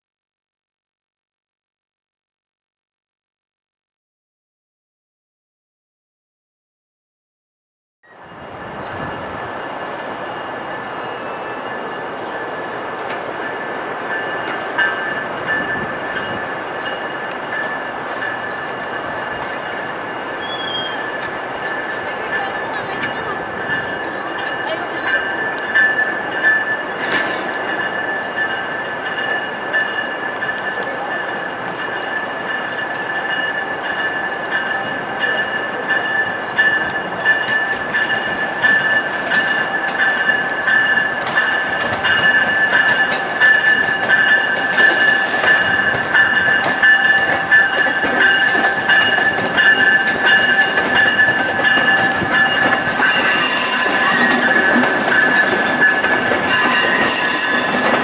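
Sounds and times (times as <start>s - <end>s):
train wheels squealing: 8.0s - 12.8s, 13.5s - 31.2s, 32.0s - 58.0s
wheels clicking over rail joints: 34.6s - 58.0s.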